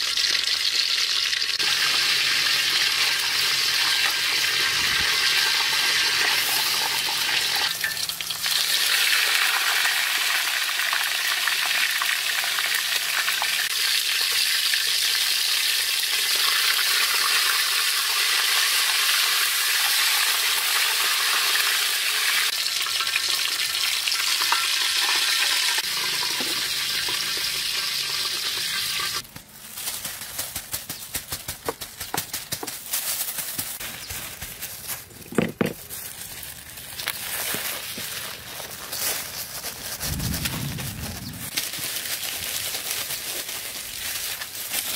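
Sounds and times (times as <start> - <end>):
oil crackling and ticking: 0.0 - 20.1, 22.4 - 44.9
deep-frying oil sizzling: 0.0 - 29.2.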